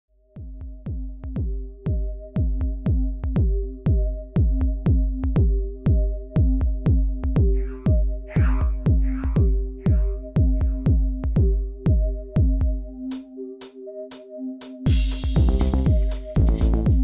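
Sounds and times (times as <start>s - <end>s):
kick drum beat: 0.3s - 12.9s, 14.9s - 17.0s
hissy snare or hi-hat hits: 14.9s - 16.7s.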